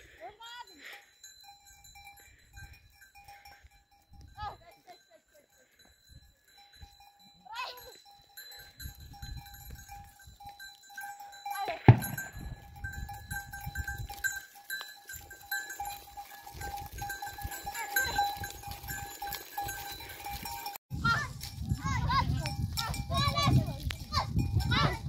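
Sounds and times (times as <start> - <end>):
goat bells ringing and clanking: 0.0 - 25.0
hooves scuffing on stony ground: 0.0 - 25.0.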